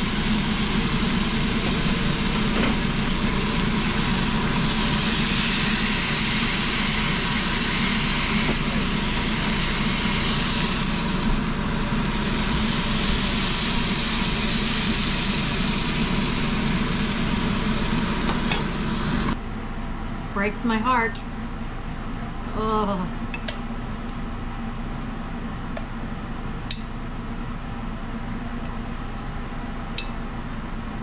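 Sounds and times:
steak sizzling in a skillet: 0.0 - 19.3.

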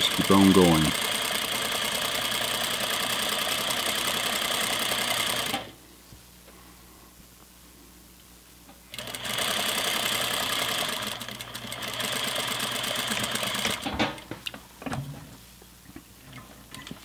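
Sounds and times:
sewing machine running: 0.0 - 5.8, 8.9 - 14.0.

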